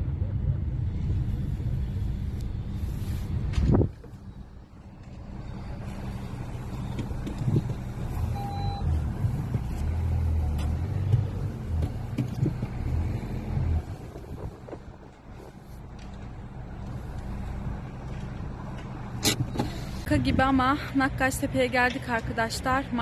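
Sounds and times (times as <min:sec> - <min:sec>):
car engine and road rumble: 0:00.0 - 0:23.0
short beep: 0:08.3 - 0:08.9.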